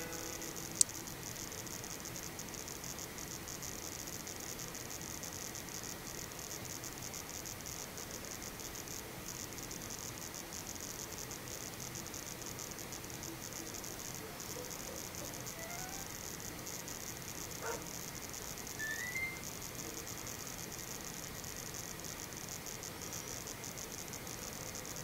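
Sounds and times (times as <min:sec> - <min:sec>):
faint hum: 0:00.0 - 0:25.0
tape playback hiss: 0:00.0 - 0:25.0
short rising chirps: 0:15.2 - 0:16.2, 0:18.8 - 0:19.5.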